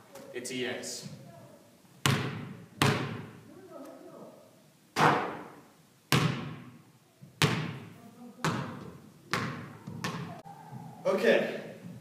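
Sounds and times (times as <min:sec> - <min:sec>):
basketball striking rim: 0:02.0 - 0:03.3, 0:06.1 - 0:06.8, 0:07.4 - 0:10.3
basketball bouncing on hardwood floor: 0:02.1 - 0:03.3, 0:06.1 - 0:10.4.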